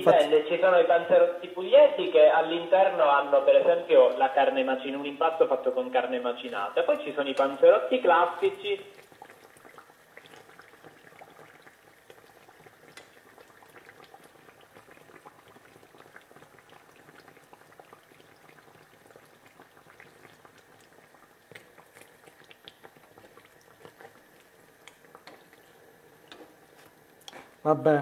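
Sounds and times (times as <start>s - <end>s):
frying oil bubbling and crackling: 6.4s - 27.6s.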